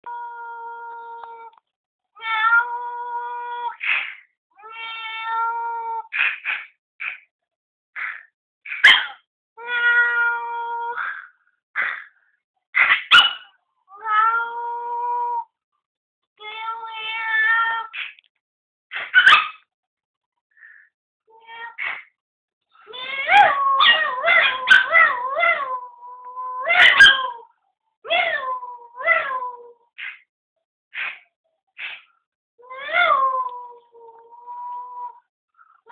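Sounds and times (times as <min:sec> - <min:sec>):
dog yapping: 0:08.7 - 0:09.2, 0:12.8 - 0:13.5, 0:18.9 - 0:19.6, 0:23.3 - 0:25.6, 0:26.7 - 0:27.4
dog howling: 0:23.0 - 0:27.5, 0:28.1 - 0:29.8, 0:32.6 - 0:35.2
dog whining: 0:23.1 - 0:27.4.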